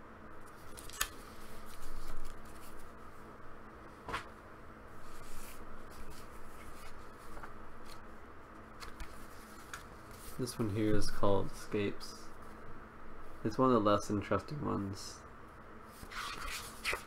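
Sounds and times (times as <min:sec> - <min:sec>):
faint steady hum: 0:00.0 - 0:17.0
paper pages rustling: 0:00.4 - 0:03.0, 0:05.0 - 0:08.0, 0:08.8 - 0:10.7, 0:16.0 - 0:17.0.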